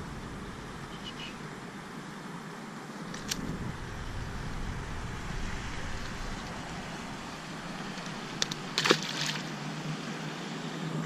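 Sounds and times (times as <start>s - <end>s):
low background rumble: 0.0s - 9.6s
fish splashing in water: 6.0s - 9.9s.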